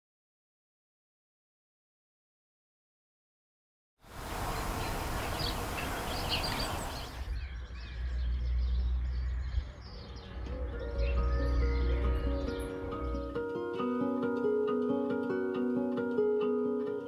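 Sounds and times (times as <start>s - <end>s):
steady hiss: 4.1s - 7.2s
small birds chirping: 4.1s - 13.5s.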